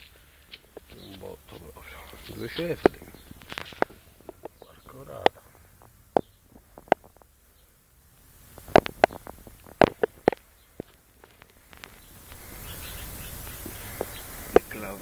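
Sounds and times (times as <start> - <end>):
soft hiss: 0.0 - 15.0
sharp clicks and knocks: 0.5 - 7.4, 8.5 - 12.0.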